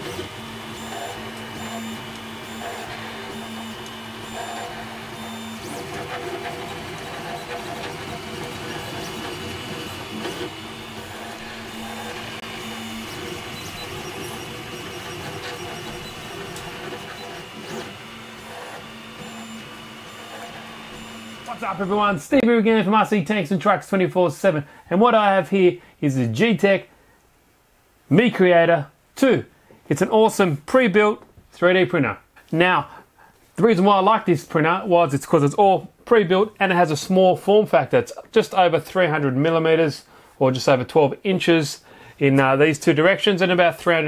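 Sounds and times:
stepper motors whining: 0:00.0 - 0:22.4.

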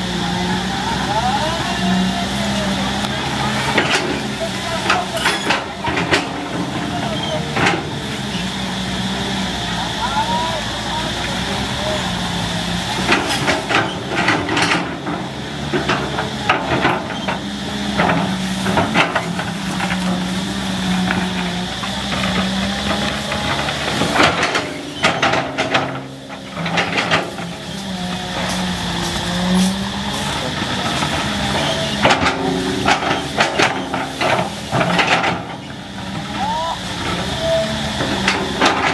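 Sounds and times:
excavator diesel engine working: 0:00.0 - 0:38.9.

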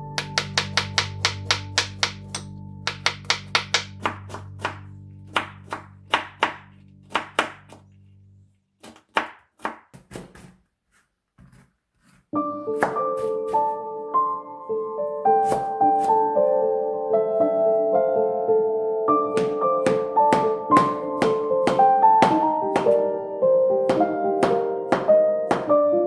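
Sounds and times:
held background music chord: 0:00.0 - 0:08.5, 0:12.4 - 0:26.0
piano music: 0:00.0 - 0:08.6, 0:12.4 - 0:26.0
knife chopping on cutting board: 0:00.2 - 0:07.8, 0:08.8 - 0:10.6, 0:15.4 - 0:16.2, 0:24.4 - 0:25.7.

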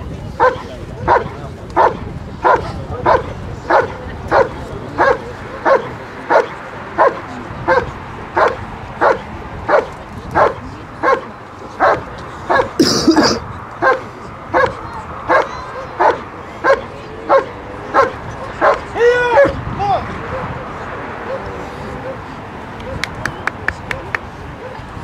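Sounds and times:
dog barking: 0:00.4 - 0:19.6, 0:24.6 - 0:24.8.

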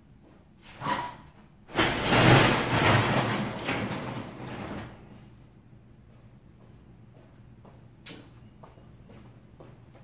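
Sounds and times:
garage door rumbling and rattling: 0:00.7 - 0:05.4
garage door opener starting: 0:01.7 - 0:05.2.

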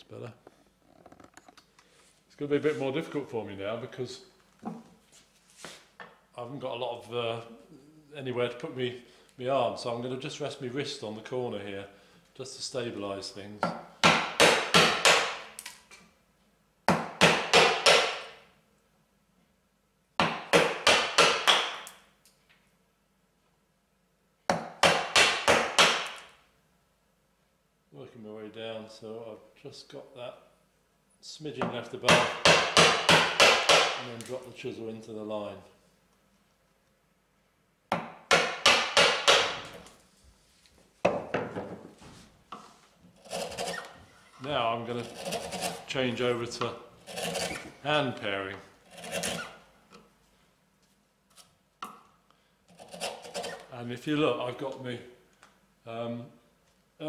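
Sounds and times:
mallet striking chisel: 0:13.6 - 0:15.5, 0:16.9 - 0:18.4, 0:20.2 - 0:21.8, 0:31.6 - 0:34.0, 0:37.9 - 0:39.8.

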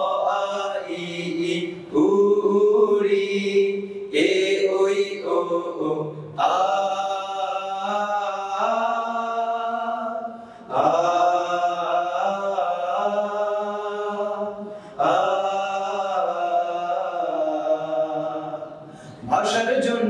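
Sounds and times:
male vocal group singing: 0:00.0 - 0:20.0.

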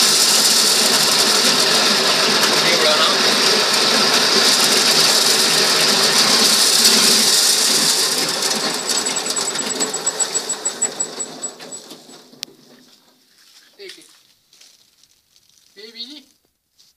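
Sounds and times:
corn sheller rattling: 0:00.0 - 0:12.4
machine ticking: 0:04.0 - 0:12.4.

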